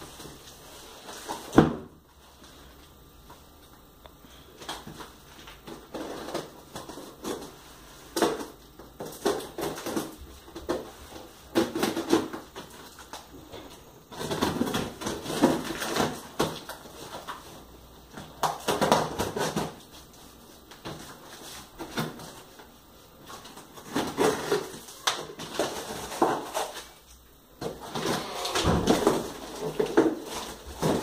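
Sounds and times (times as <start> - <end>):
cardboard rustling: 27.6 - 31.0.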